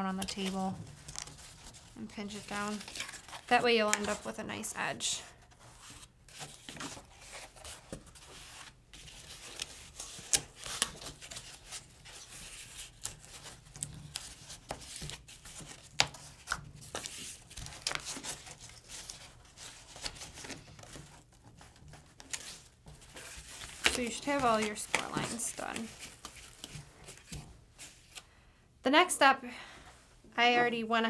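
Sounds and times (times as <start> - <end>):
cardboard rustling and scraping: 5.4 - 28.2.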